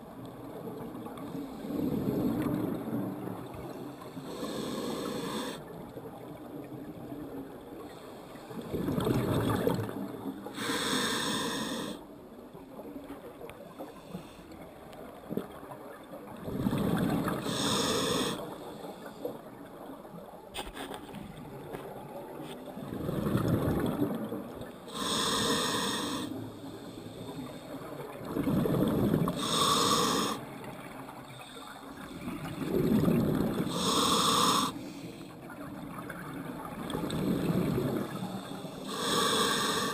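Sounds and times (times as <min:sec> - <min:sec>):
regulator breathing hiss: 0:04.2 - 0:05.6, 0:10.6 - 0:12.0, 0:17.4 - 0:19.1, 0:24.9 - 0:27.8, 0:29.3 - 0:30.4, 0:33.7 - 0:35.3, 0:38.3 - 0:39.9
exhaled bubbles rushing: 0:32.4 - 0:33.7.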